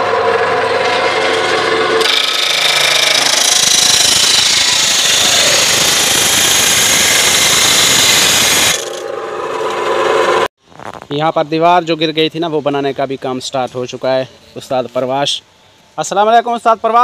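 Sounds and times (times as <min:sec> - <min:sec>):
chop saw cutting metal: 0:00.0 - 0:10.5.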